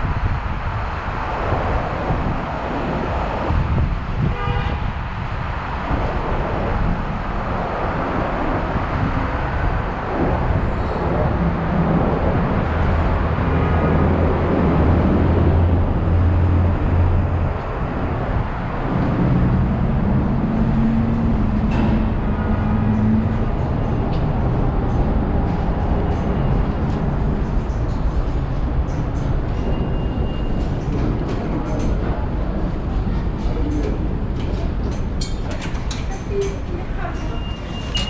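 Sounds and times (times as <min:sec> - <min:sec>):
city street traffic: 0:00.0 - 0:38.0
vehicle horn toot: 0:04.2 - 0:04.9.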